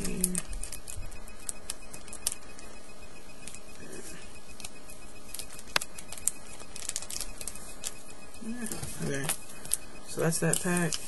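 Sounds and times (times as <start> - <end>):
card clicks and rustles: 4.5 - 8.1.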